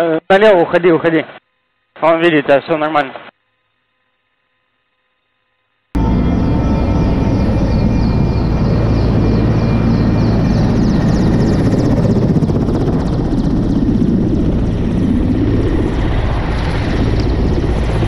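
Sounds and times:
helicopter rotor thudding: 6.0 - 18.0.

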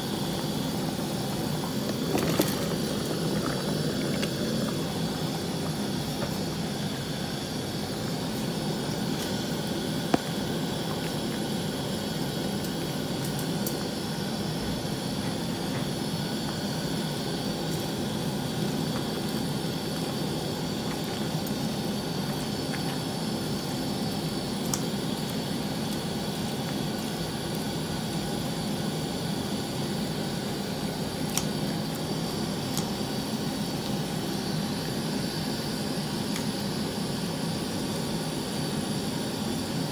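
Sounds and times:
gas burner rushing: 0.0 - 28.4.

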